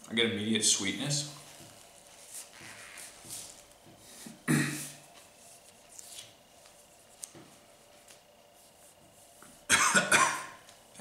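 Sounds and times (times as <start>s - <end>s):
sharp throat cough: 4.5s - 4.9s, 9.7s - 10.6s.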